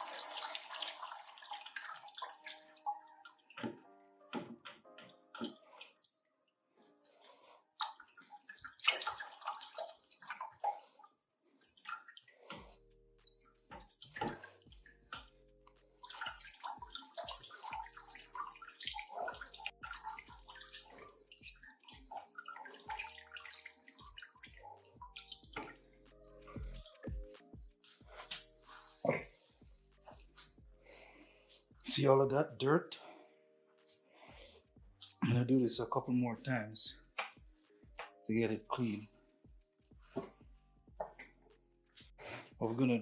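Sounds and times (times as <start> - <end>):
water gurgling into bucket: 0.0 - 3.8, 13.3 - 27.1
soft background music: 0.0 - 43.0.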